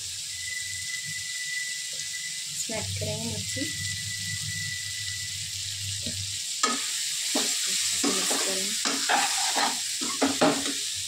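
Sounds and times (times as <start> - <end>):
vegetables sizzling in a pan: 0.0 - 11.0
metal spoon scraping a pan: 6.6 - 10.8.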